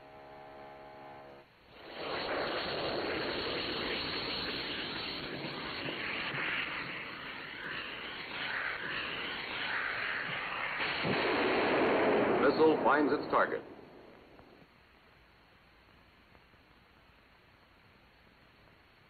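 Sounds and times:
rocket motor roaring: 0:01.8 - 0:14.6.

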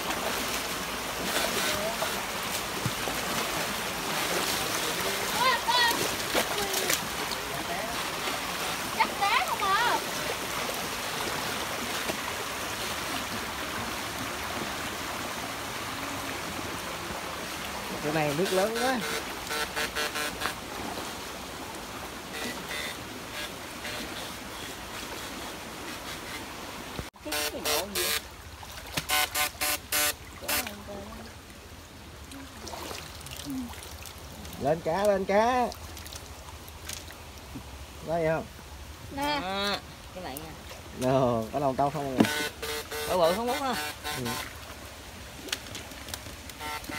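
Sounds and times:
stream flowing: 0:00.0 - 0:46.9
electric rod buzzing: 0:18.6 - 0:20.6, 0:29.0 - 0:30.7, 0:42.2 - 0:44.5, 0:46.6 - 0:46.9.

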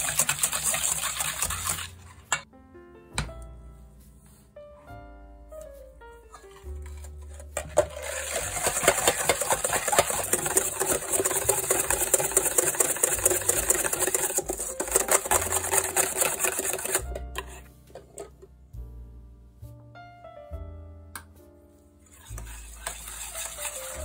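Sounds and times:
wire whisk scraping metal bowl: 0:00.0 - 0:02.4, 0:06.3 - 0:18.3, 0:22.1 - 0:24.0.

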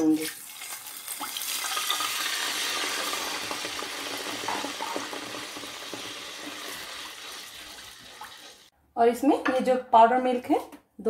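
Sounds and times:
milk sizzling in hot ghee: 0:00.0 - 0:08.7.

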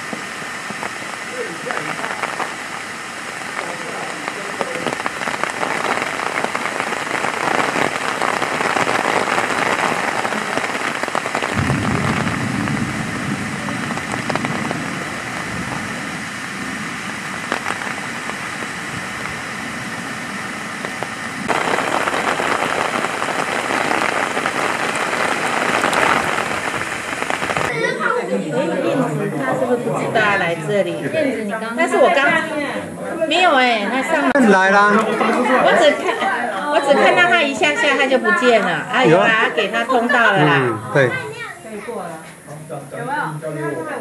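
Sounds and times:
steady rain: 0:00.0 - 0:44.0
low rumble: 0:11.5 - 0:20.4.

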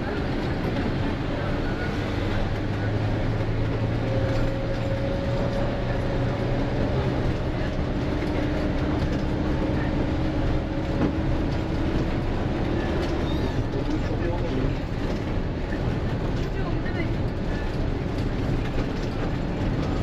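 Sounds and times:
bus engine drone: 0:00.0 - 0:20.0.

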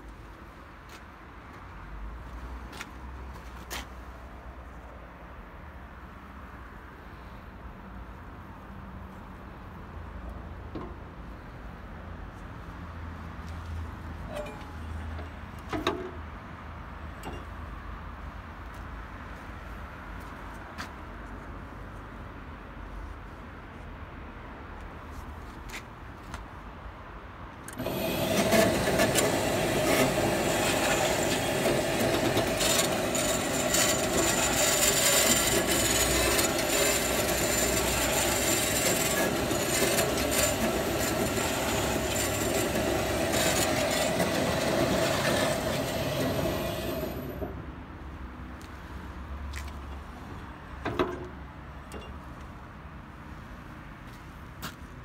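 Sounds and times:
band saw running with high whine: 0:27.8 - 0:47.5.

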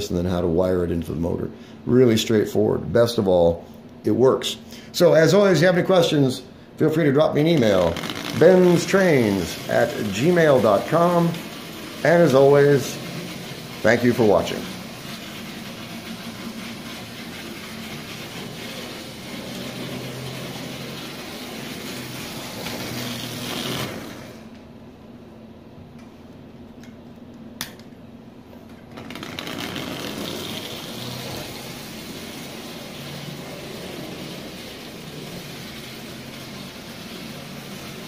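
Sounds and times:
toy train motor running: 0:07.0 - 0:24.5, 0:29.0 - 0:38.0.

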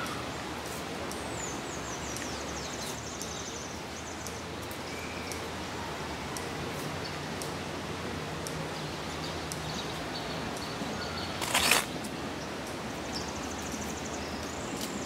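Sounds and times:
outdoor background noise: 0:00.0 - 0:15.0
bird chirp: 0:08.8 - 0:11.8.

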